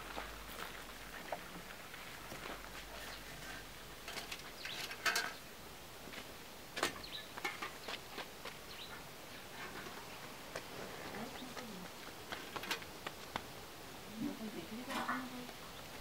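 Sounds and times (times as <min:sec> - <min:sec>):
metal pots and dishes clinking: 0:04.1 - 0:05.4.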